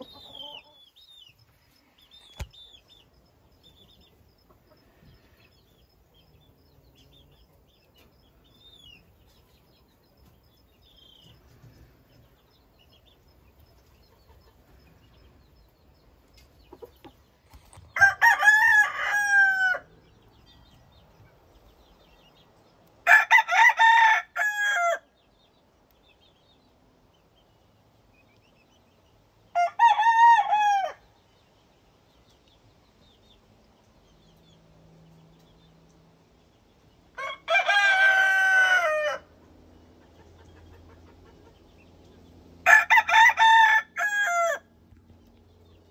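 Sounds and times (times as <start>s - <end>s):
rooster crowing: 18.0s - 19.9s, 23.0s - 25.0s, 29.5s - 31.1s, 37.2s - 39.3s, 42.6s - 44.7s.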